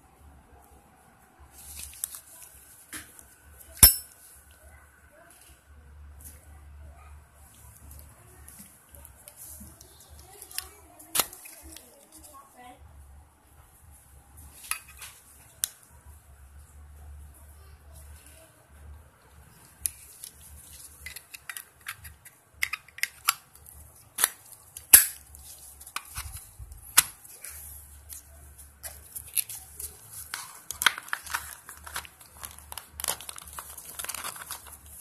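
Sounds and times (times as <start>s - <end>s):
packaging rustling and crinkling: 1.6s - 2.9s, 22.9s - 35.0s.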